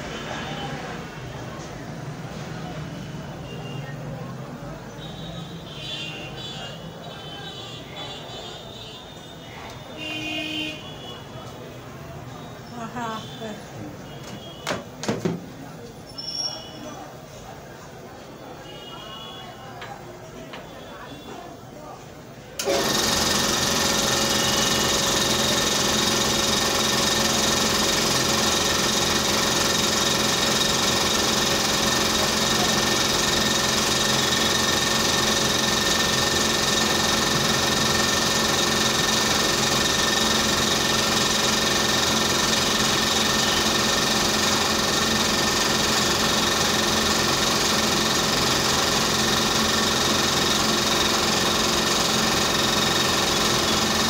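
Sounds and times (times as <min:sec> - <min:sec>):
dental equipment motor whine: 0:22.6 - 0:54.0.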